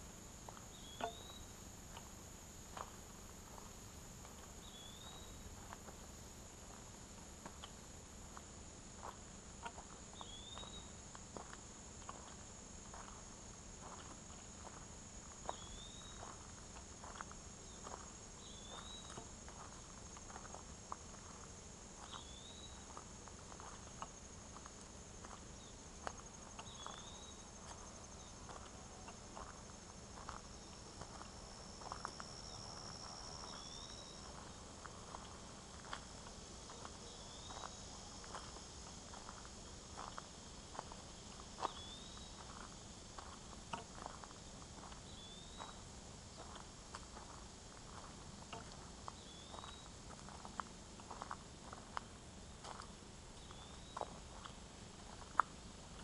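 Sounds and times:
faint ticks and crackles: 0:00.0 - 0:56.0
high insect drone: 0:00.0 - 0:56.0.

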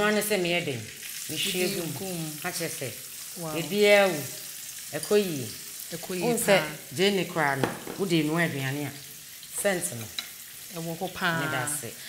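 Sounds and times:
people talking: 0:00.0 - 0:04.3, 0:05.0 - 0:09.0, 0:10.8 - 0:12.0
onions sizzling in oil: 0:00.0 - 0:12.0.

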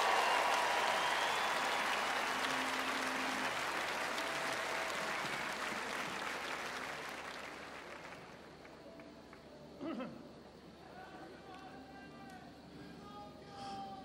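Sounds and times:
crowd applause: 0:00.0 - 0:08.8.

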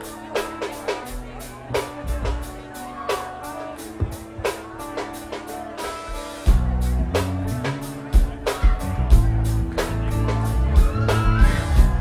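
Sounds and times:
live rock band playing: 0:00.0 - 0:12.0
heavy bass: 0:06.5 - 0:12.0.

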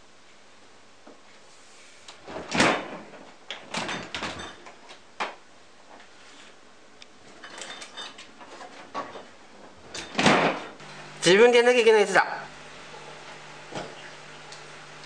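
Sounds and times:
refrigerator door thud: 0:02.3 - 0:03.0, 0:10.1 - 0:10.7
refrigerator door rattling: 0:02.3 - 0:04.6, 0:09.9 - 0:10.8.

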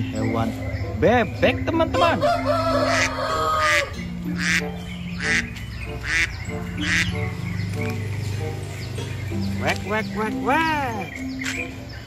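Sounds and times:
background music: 0:00.0 - 0:12.0
ducks quacking: 0:00.2 - 0:08.2.

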